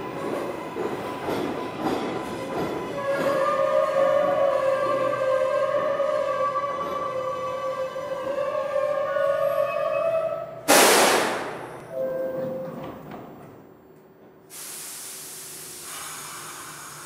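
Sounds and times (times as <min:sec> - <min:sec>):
subway train whining: 0:00.0 - 0:17.0
loud hiss of air: 0:10.7 - 0:11.6, 0:14.5 - 0:17.0
steady air hiss: 0:14.5 - 0:17.0.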